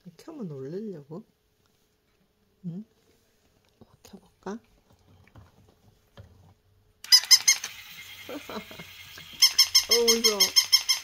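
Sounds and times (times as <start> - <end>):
toy dog motor clicking rattle: 7.0 - 11.0
short squeaky calls: 7.1 - 7.8, 9.4 - 11.0.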